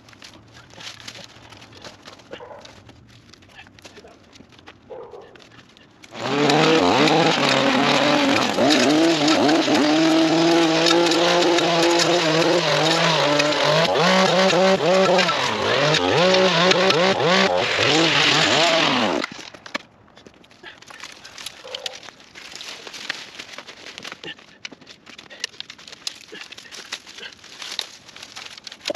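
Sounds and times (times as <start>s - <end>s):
string trimmer engine running: 6.1s - 19.4s.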